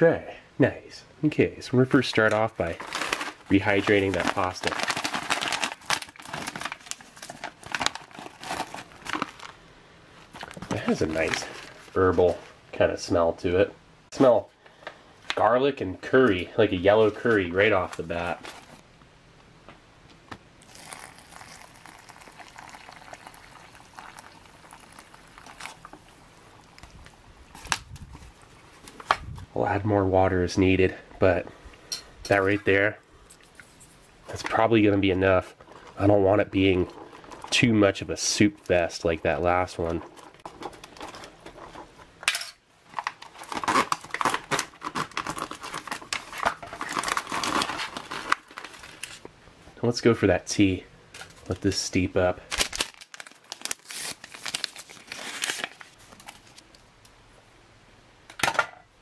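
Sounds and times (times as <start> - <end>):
food pouch crinkling and rustling: 2.1 - 9.6, 10.2 - 12.3, 20.6 - 29.4, 35.6 - 38.8, 39.8 - 42.1, 42.8 - 49.3, 52.4 - 56.8
water pouring into pouch: 20.6 - 26.9.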